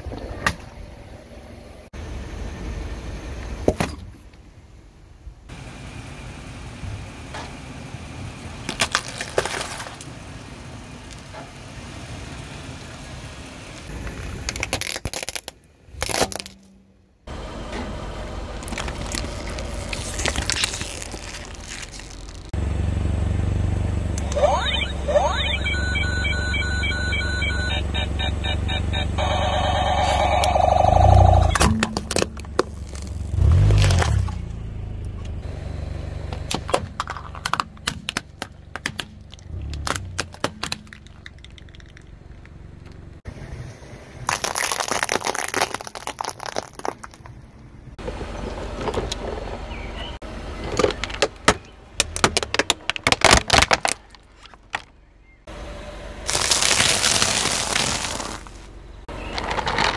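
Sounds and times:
gritty crunching under tyre: 8.2s - 12.2s, 13.6s - 16.7s, 18.4s - 55.5s, 56.2s - 59.9s
plastic cracking and snapping: 14.4s - 16.6s, 18.6s - 22.5s, 44.3s - 47.3s, 50.8s - 54.9s.

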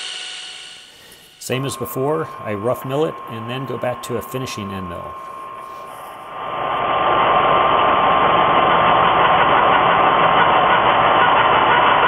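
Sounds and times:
milling machine cutting metal: 0.0s - 6.8s
high whine: 0.0s - 12.0s.

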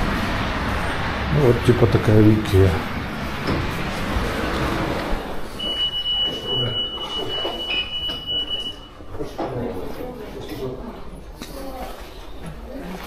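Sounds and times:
shop background noise: 0.0s - 13.0s
high electronic beep: 5.6s - 9.0s.

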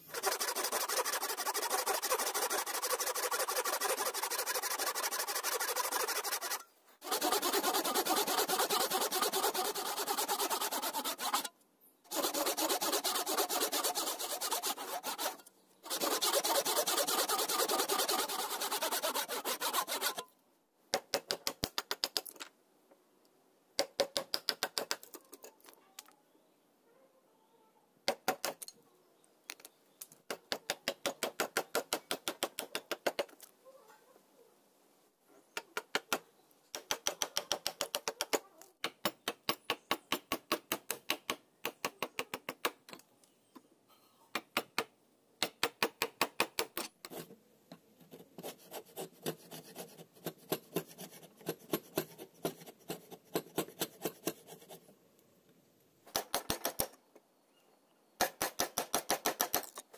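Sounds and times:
hacksaw blade sawing wood: 0.1s - 11.5s, 12.1s - 20.3s, 48.0s - 54.8s.

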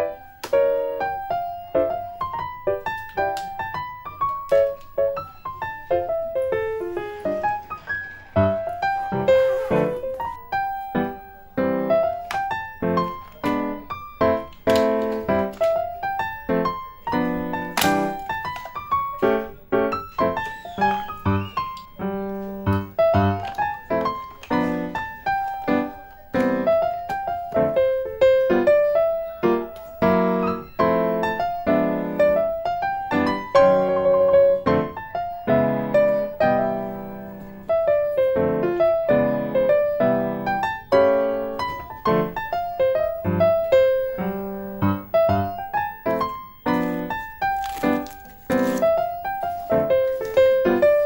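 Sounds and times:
gentle piano music: 0.0s - 51.0s.

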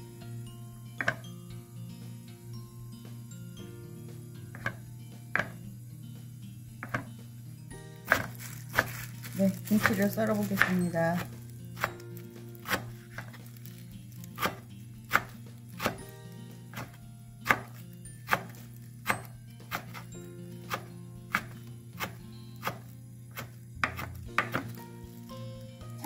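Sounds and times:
knife chopping on wooden board: 1.0s - 1.2s, 4.5s - 4.8s, 5.4s - 5.6s, 6.8s - 7.2s, 8.1s - 12.0s, 12.6s - 13.4s, 14.3s - 16.1s, 16.7s - 24.8s.

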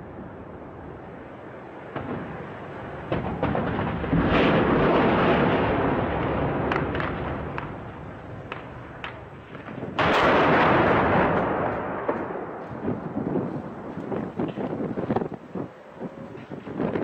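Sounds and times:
large explosion with rumble: 1.9s - 15.3s
gunfire cracks: 3.1s - 12.8s.

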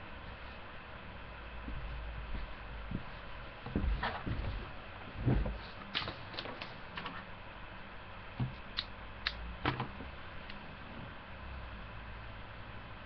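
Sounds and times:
bumps and rustles near microphone: 1.6s - 7.3s.

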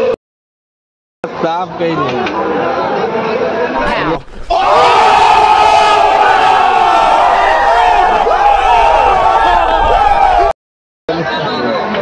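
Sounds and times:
crowd yelling: 3.8s - 10.6s.

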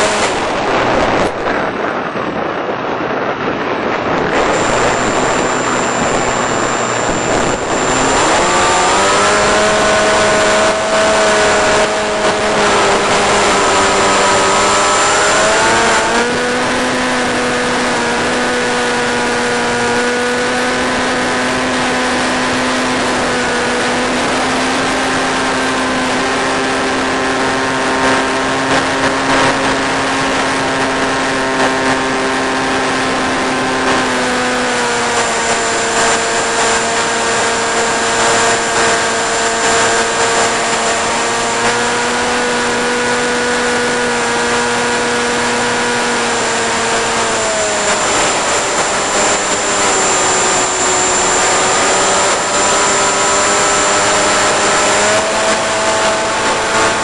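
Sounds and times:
electric motor and propeller drone: 0.0s - 57.0s.

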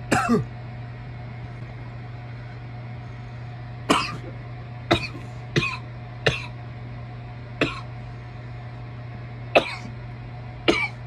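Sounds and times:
person coughing hard: 0.1s - 0.5s, 3.9s - 6.6s, 7.6s - 7.9s, 9.6s - 10.0s, 10.7s - 11.0s.

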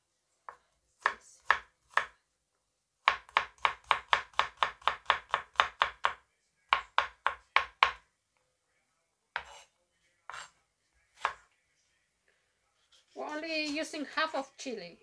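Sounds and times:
knife chopping on cutting board: 0.5s - 2.2s, 3.0s - 8.0s, 9.4s - 9.7s, 10.3s - 10.5s, 11.2s - 11.4s.

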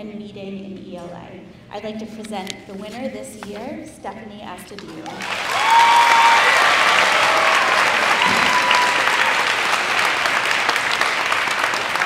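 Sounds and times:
audience applauding: 5.2s - 12.0s
high calls from crowd: 5.4s - 10.8s.

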